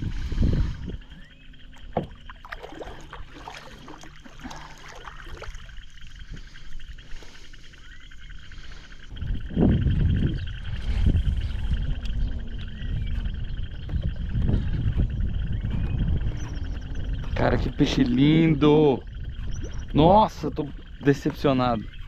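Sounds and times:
knocks and splashes around kayak: 1.7 - 6.6.

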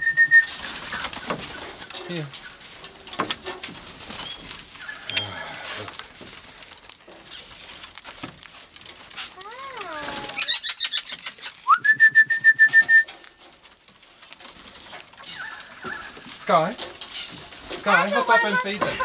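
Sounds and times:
parrots calling: 4.2 - 6.0, 9.2 - 11.7, 15.2 - 19.0
high steady whistle: 11.7 - 13.1.

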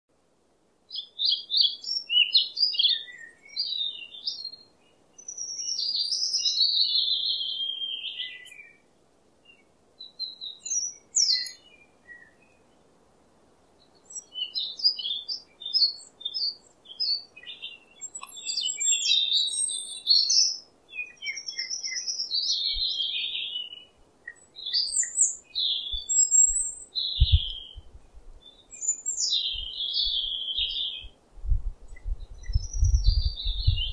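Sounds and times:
small birds chirping: 0.2 - 33.9.

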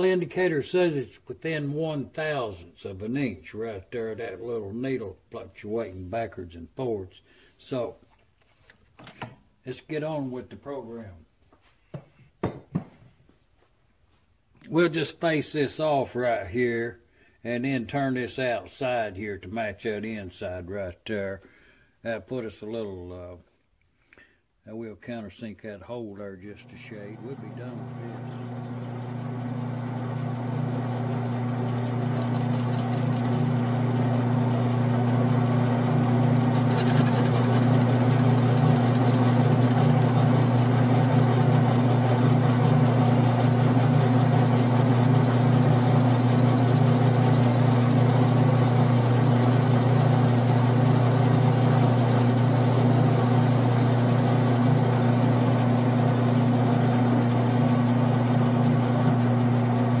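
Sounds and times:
lathe motor and gear hum: 27.1 - 60.0.

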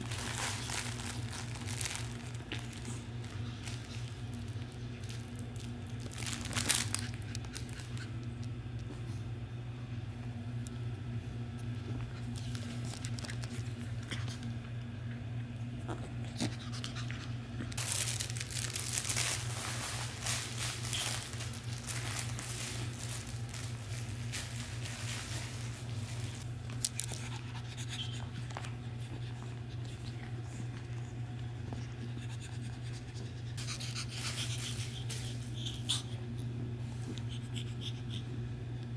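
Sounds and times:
puppies scuffling on rug: 0.0 - 8.2, 11.7 - 14.6, 17.8 - 32.2.

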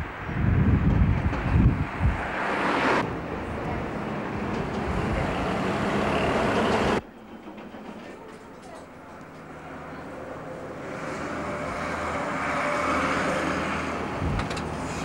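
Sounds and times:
wind buffeting microphone: 0.0 - 7.0, 14.0 - 14.9
road traffic noise: 0.0 - 15.0
vehicle going by: 1.0 - 7.0, 9.6 - 15.0.

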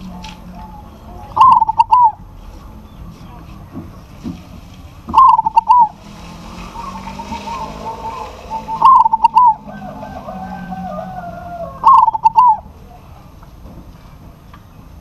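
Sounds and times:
dove cooing: 0.0 - 2.5, 5.1 - 12.7.

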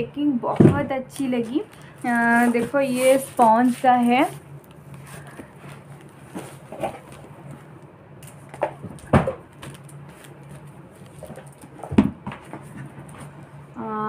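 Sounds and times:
steady low hum: 0.0 - 14.0
foam packing rubs and knocks: 1.3 - 4.4, 8.6 - 13.4.

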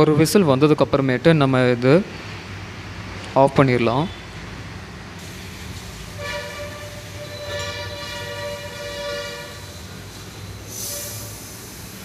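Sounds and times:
steam hissing: 5.2 - 12.0
pressure cooker whistling: 6.2 - 10.0, 10.6 - 12.0.

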